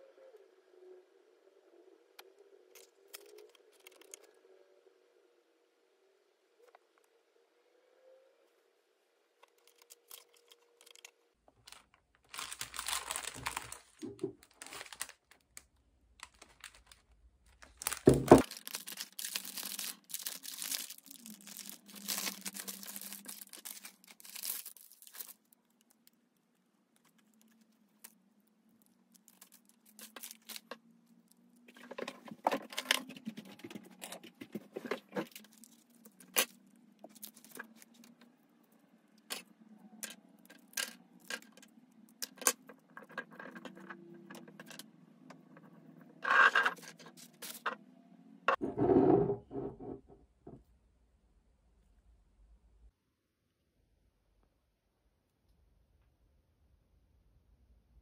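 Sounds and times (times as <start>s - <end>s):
wrapping paper crinkling and tearing: 9.6s - 26.2s, 26.9s - 38.2s.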